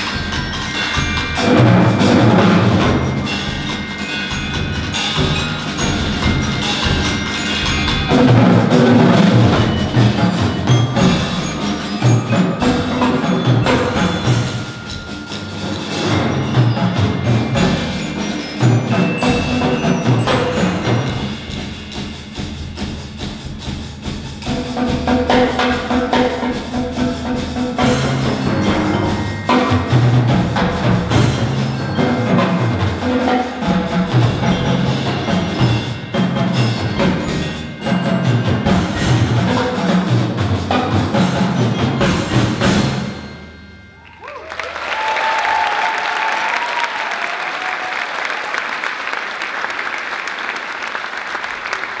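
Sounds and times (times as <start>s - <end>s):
percussion ensemble on marimbas: 0.0s - 48.5s
audience applauding: 44.0s - 52.0s.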